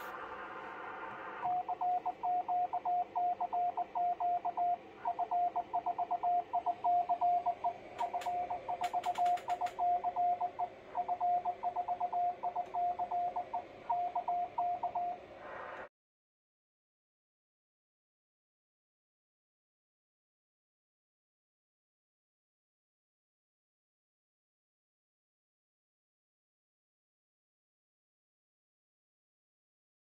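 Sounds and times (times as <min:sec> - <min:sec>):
morse code tone: 0:01.4 - 0:15.2
sharp clicks: 0:08.0 - 0:10.0.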